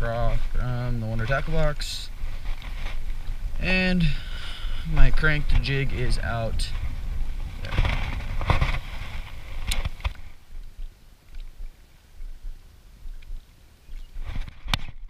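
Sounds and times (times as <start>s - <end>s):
faint outdoor hush: 0.0s - 14.6s
wind rumbling on microphone: 0.0s - 15.0s
microphone handling clicks: 6.6s - 11.5s.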